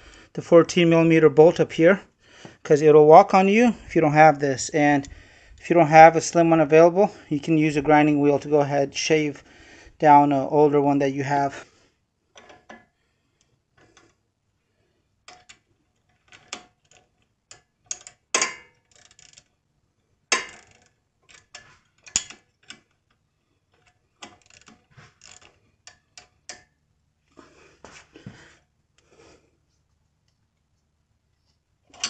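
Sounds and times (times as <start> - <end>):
hand ratchet clicking: 16.3 - 19.5, 23.8 - 26.7
wrench clinking on bolt: 16.3 - 19.5, 20.3 - 22.8.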